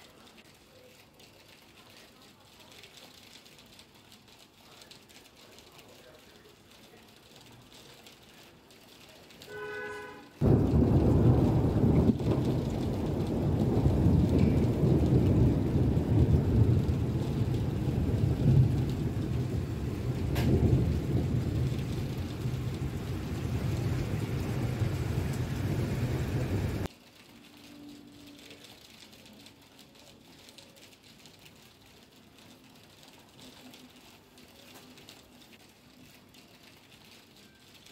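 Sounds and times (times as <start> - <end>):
heavy rain: 0.0 - 37.9
deep rumble: 10.4 - 26.9.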